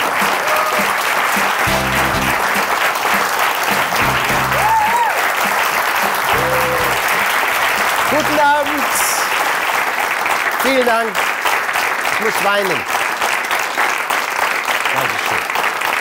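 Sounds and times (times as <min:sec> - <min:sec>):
audience applauding: 0:00.0 - 0:16.0
instrumental theme music: 0:01.3 - 0:08.5.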